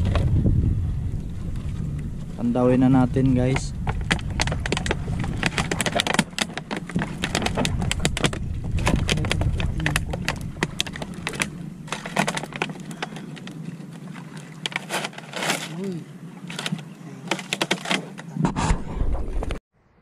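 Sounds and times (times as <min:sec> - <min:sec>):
low rumble: 0:00.0 - 0:13.6
longline gear clicking and knocking: 0:03.5 - 0:13.2.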